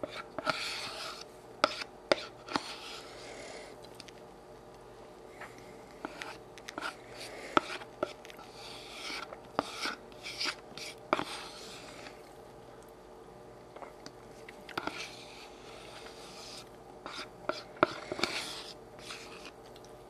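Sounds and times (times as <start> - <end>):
spoon scraping plastic cup: 7.6 - 12.2, 15.9 - 19.6.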